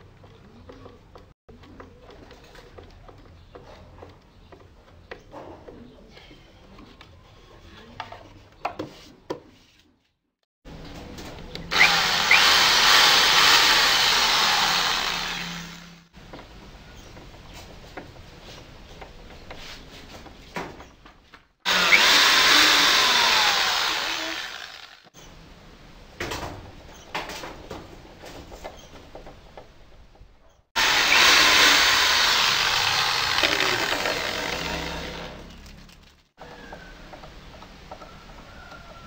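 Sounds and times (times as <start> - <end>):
electric drill running: 11.7 - 16.1, 21.7 - 25.1, 30.8 - 35.5.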